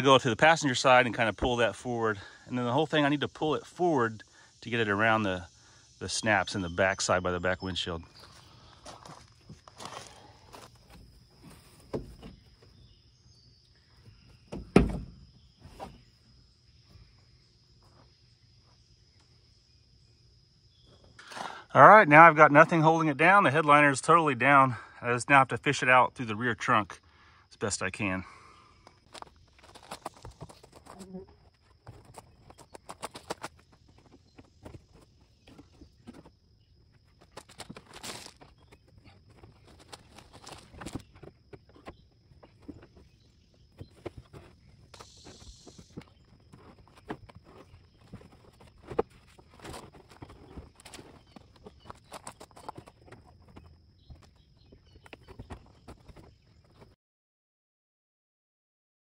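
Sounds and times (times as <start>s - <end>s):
footsteps on gravel: 8.1s - 12.4s, 29.0s - 56.9s
loud thump: 14.5s - 15.2s.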